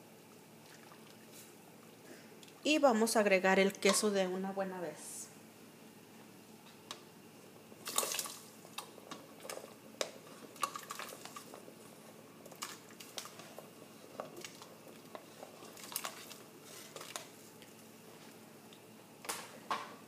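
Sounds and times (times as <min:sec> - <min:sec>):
food dropping into liquid: 0:07.8 - 0:11.6.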